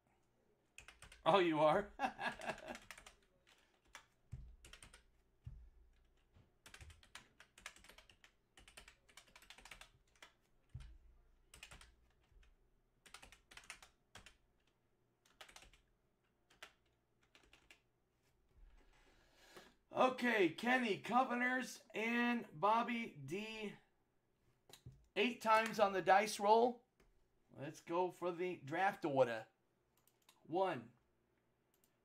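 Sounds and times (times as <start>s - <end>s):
keyboard typing: 0.8s - 1.2s, 2.2s - 15.9s, 16.5s - 17.8s.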